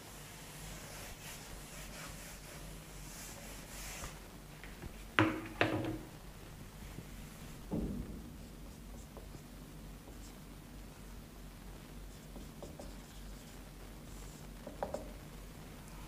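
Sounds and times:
duster rubbing on whiteboard: 0:00.0 - 0:04.2
sharp knocks: 0:07.7 - 0:08.4.

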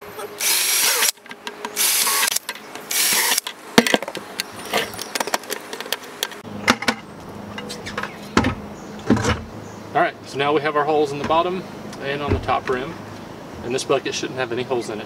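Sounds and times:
cordless drill boring plastic: 0:00.4 - 0:01.2, 0:01.8 - 0:03.5.

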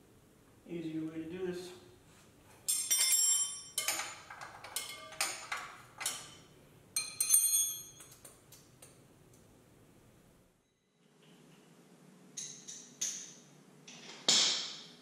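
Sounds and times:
metal tools clinking on engine parts: 0:02.6 - 0:06.4, 0:07.0 - 0:08.2.

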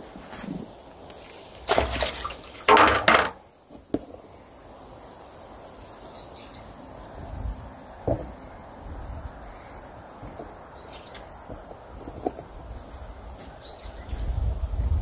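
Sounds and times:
water splashing: 0:01.1 - 0:03.3.

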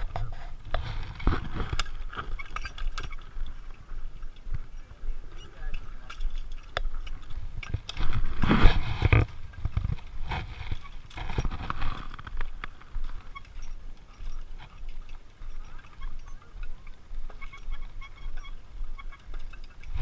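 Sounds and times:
harness hardware rattling: 0:00.0 - 0:20.0
shoes bumping wooden rungs: 0:06.0 - 0:20.0.

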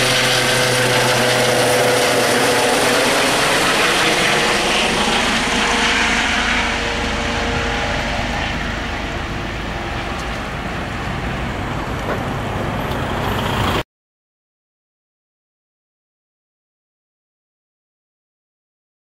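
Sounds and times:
helicopter rotor and turbine: 0:00.0 - 0:13.8.

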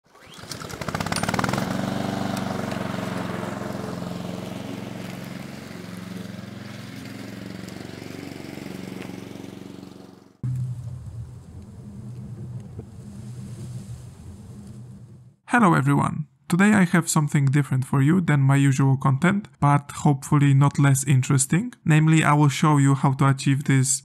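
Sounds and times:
lawn mower engine running: 0:00.1 - 0:15.4
low hum: 0:08.9 - 0:15.4.

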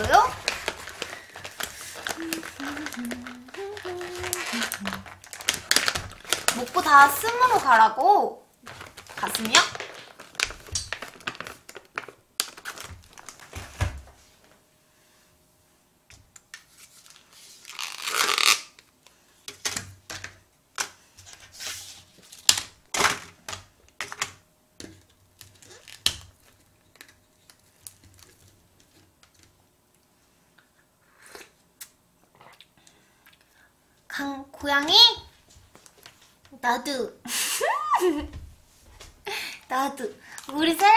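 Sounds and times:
packaging crinkling: 0:00.0 - 0:07.6, 0:08.6 - 0:14.2, 0:16.6 - 0:18.9, 0:21.3 - 0:29.5
packet tearing open: 0:00.3 - 0:06.9, 0:08.7 - 0:13.6, 0:17.0 - 0:18.9.

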